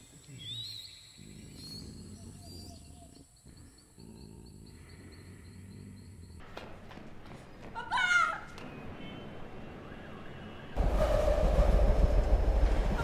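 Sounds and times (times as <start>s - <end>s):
low rumble: 10.8s - 13.0s.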